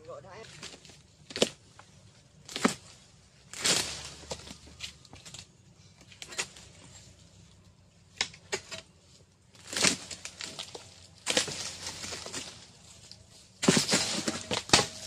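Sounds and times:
rustling of fibre and fronds: 0.0s - 7.7s, 9.0s - 15.0s
chisel chopping palm stalks: 0.4s - 1.8s, 2.4s - 7.0s, 9.6s - 12.8s, 13.5s - 15.0s.

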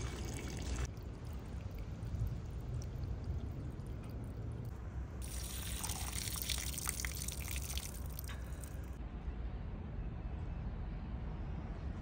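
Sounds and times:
steady low rumble: 0.6s - 6.1s
water spraying from a nozzle: 5.2s - 8.8s.

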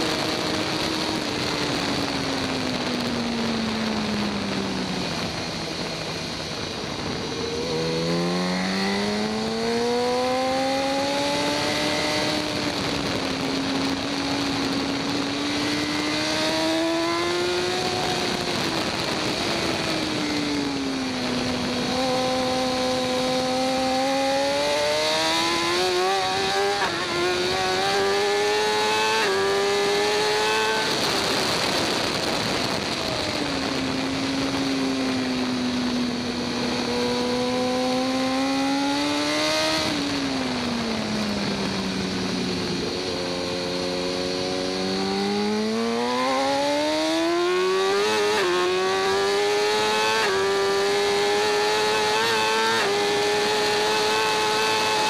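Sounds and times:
motorcycle engine revving: 0.0s - 55.0s
wind rush: 0.0s - 55.0s.

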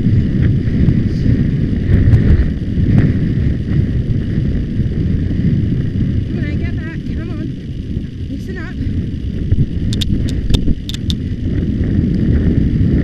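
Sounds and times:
wind buffeting microphone: 0.0s - 13.0s
faint clicks: 9.9s - 11.2s.

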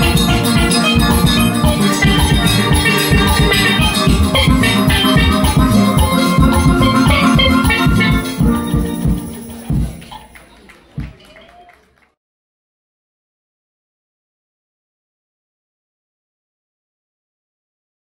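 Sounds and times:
steel band playing: 0.0s - 10.4s.

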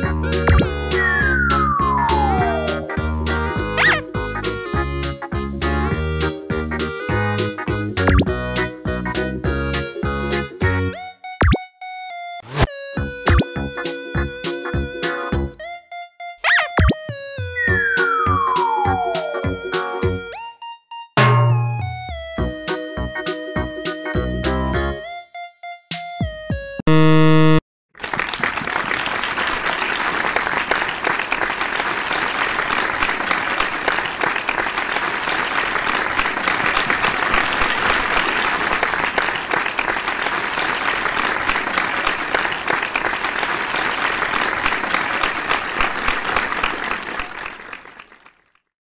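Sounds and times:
buzzer tone: 26.9s - 27.6s
applause: 28.0s - 48.7s.

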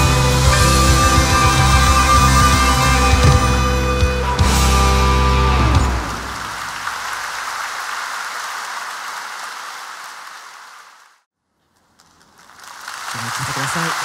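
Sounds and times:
large audience applauding: 5.1s - 11.2s, 11.9s - 14.0s.

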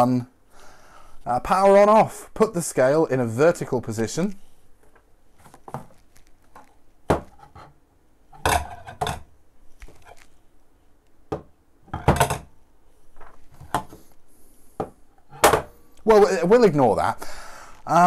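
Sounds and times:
handling noise: 4.5s - 15.8s
plastic knocking on wood: 11.3s - 12.4s.

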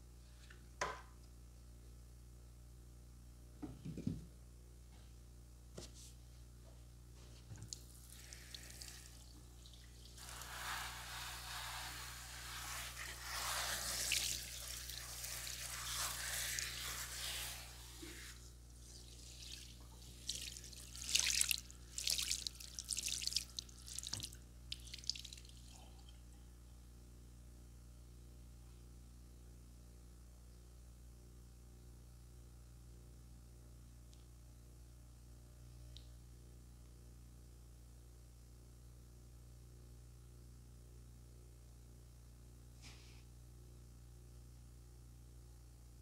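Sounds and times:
water running from a tap: 19.3s - 25.5s
water splashing and dripping: 19.3s - 25.6s.

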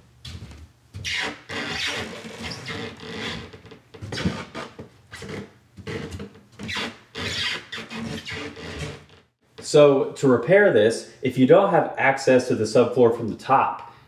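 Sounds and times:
plywood subfloor creaking and squeaking: 0.2s - 9.4s.

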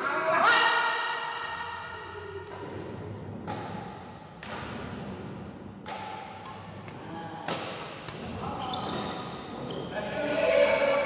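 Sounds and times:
rackets hitting shuttlecock: 3.4s - 9.2s.

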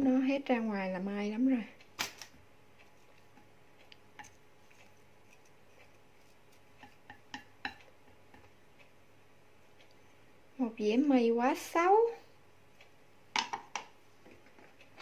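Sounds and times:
chopsticks clicking on ceramic bowl: 3.1s - 5.9s, 6.8s - 8.6s.

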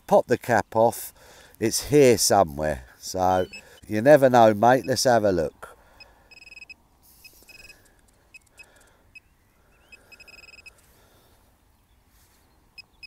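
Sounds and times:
pinpointer beeping: 3.3s - 3.9s, 6.3s - 9.3s, 9.9s - 10.7s.

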